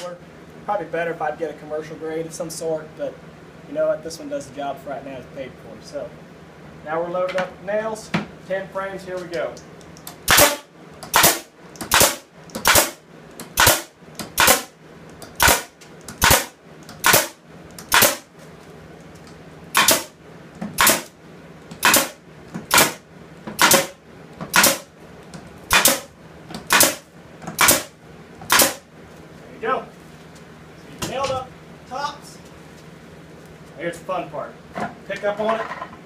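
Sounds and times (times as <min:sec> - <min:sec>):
nail gun firing into wood: 0:10.3 - 0:13.0, 0:13.6 - 0:14.7, 0:15.4 - 0:18.3, 0:19.7 - 0:20.1, 0:20.8 - 0:21.1, 0:21.8 - 0:23.0, 0:23.6 - 0:24.9, 0:25.7 - 0:27.9, 0:28.5 - 0:28.8.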